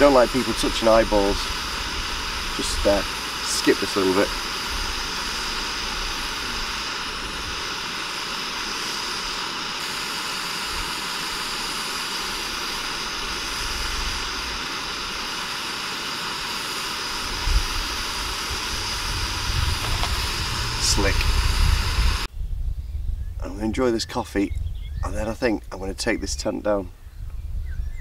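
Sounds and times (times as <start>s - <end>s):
steady rushing noise: 0.0s - 22.3s.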